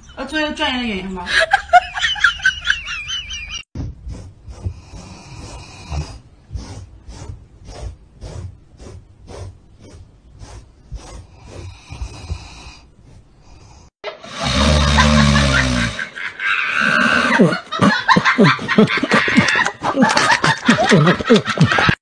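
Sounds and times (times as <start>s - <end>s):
brush scraping over fur: 4.0s - 13.3s
dog snoring: 4.1s - 16.0s.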